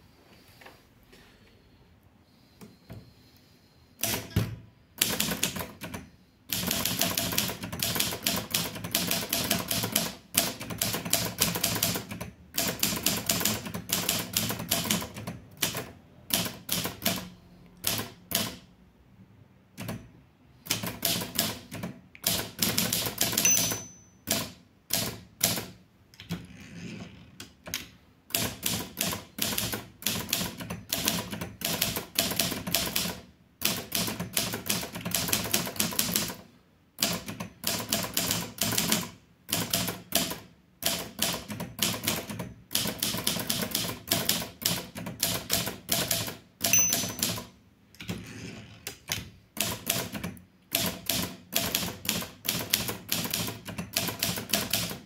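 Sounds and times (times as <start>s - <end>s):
typewriter key strikes: 46.0s - 47.5s.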